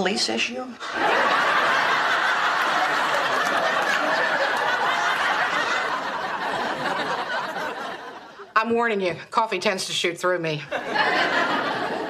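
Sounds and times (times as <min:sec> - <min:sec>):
studio audience laughing: 0:00.8 - 0:08.5, 0:10.7 - 0:12.0.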